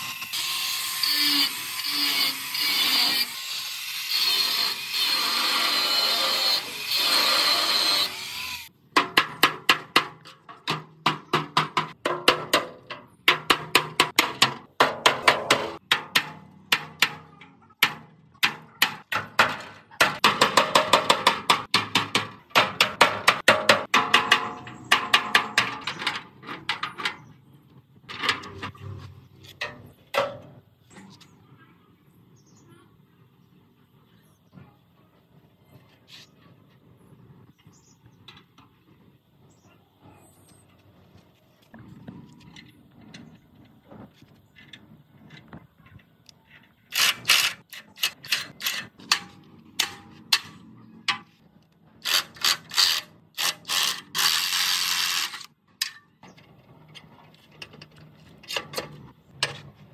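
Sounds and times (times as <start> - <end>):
power tool running: 0.0 - 8.7.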